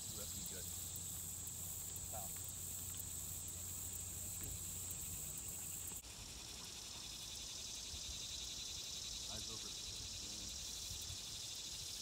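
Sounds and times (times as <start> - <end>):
insects buzzing in chorus: 0.0 - 12.0
pulsing insect chorus: 0.0 - 12.0.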